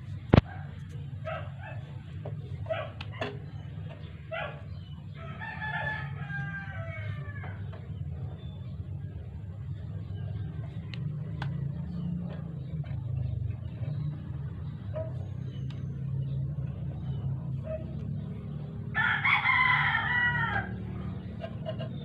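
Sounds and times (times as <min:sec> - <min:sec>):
rooster crowing: 0:05.1 - 0:07.8, 0:18.9 - 0:21.8.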